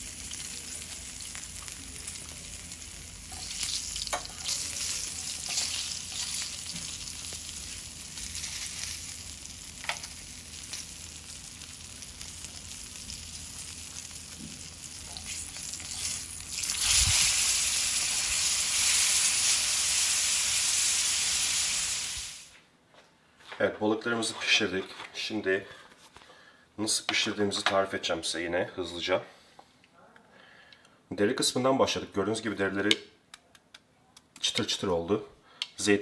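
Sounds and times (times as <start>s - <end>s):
fish sizzling in a pan: 0.0s - 22.5s.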